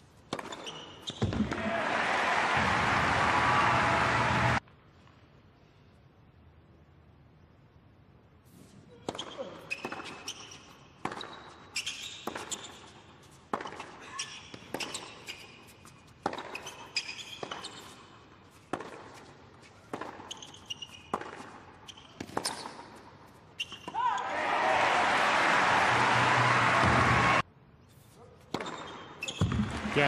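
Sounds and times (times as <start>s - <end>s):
shoes squeaking on court: 0.2s - 1.5s, 8.6s - 24.3s, 27.8s - 29.7s
ball bouncing: 0.3s - 1.7s, 13.5s - 13.9s, 16.2s - 17.8s, 28.5s - 29.9s
rackets striking tennis ball: 0.3s - 1.8s, 9.0s - 12.9s, 13.5s - 24.0s, 28.4s - 29.9s.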